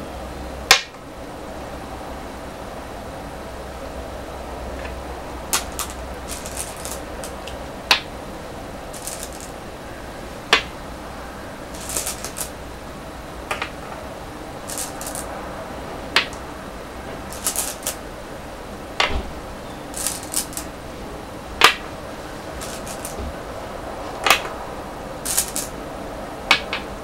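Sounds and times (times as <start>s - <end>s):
stones rattling in bowl: 5.5s - 7.5s, 8.9s - 9.6s, 11.7s - 12.6s, 14.6s - 15.3s, 17.3s - 18.0s, 20.0s - 20.7s, 22.6s - 23.2s, 25.3s - 25.7s
stone clacking on wooden board: 9.0s - 9.5s, 11.8s - 12.5s, 17.3s - 18.0s.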